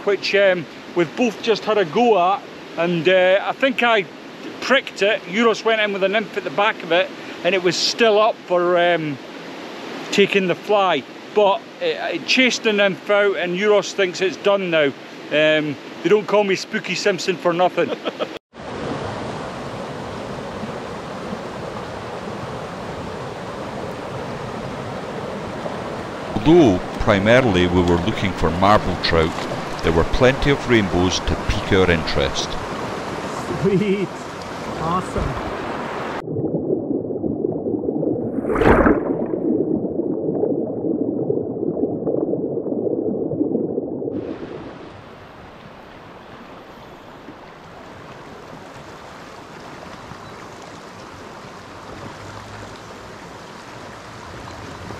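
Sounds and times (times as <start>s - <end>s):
stream rushing: 0.0s - 36.2s, 44.1s - 54.9s
muffled underwater river rush: 18.6s - 54.9s
gurgling splash: 26.2s - 33.0s, 34.6s - 46.1s.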